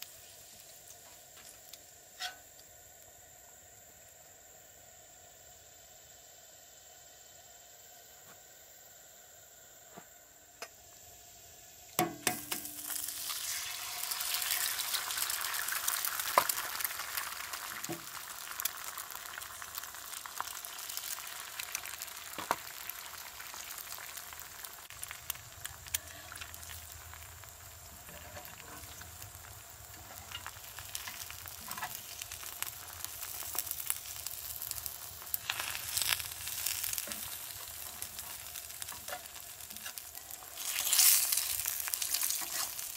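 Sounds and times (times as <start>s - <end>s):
eggs sizzling on a griddle: 0.0s - 42.9s
metal spatula scraping: 2.2s - 2.4s, 40.6s - 42.8s.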